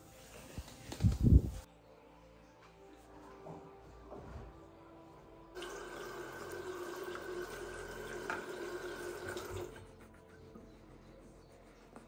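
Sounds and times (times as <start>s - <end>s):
tap running into sink: 8.1s - 9.7s.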